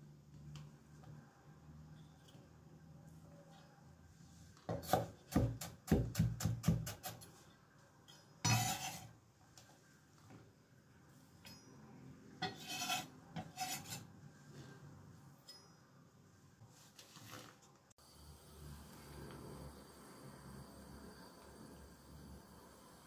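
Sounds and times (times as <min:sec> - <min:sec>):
knife chopping on wooden board: 0:04.7 - 0:07.2
knife scraping cutting board: 0:08.4 - 0:09.1, 0:12.4 - 0:14.1.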